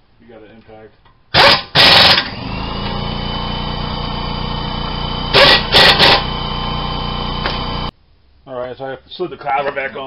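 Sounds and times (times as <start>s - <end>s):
air impact wrench bursts: 1.3s - 7.9s
air compressor droning: 1.4s - 7.9s.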